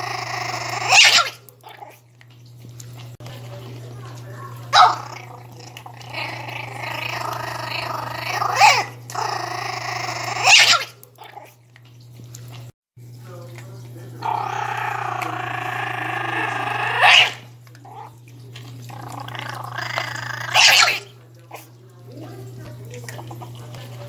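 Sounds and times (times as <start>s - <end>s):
puppy growling: 0.0s - 2.0s, 2.8s - 11.6s, 14.2s - 24.0s
puppy snarling barks: 0.0s - 2.0s, 4.0s - 11.6s, 14.2s - 18.2s, 18.9s - 21.7s.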